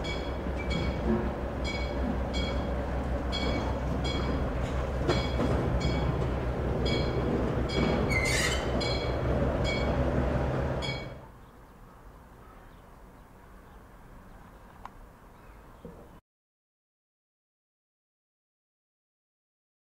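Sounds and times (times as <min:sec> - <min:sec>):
diesel locomotive engine rumble: 0:00.0 - 0:12.4
high-pitched squeaks: 0:06.8 - 0:10.0.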